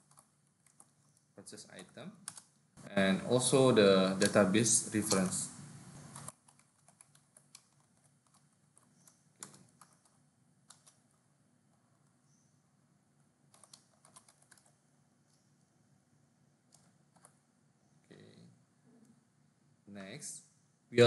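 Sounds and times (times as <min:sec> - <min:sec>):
keyboard typing: 0:00.0 - 0:02.6, 0:04.1 - 0:12.2, 0:13.5 - 0:15.5, 0:16.7 - 0:17.4.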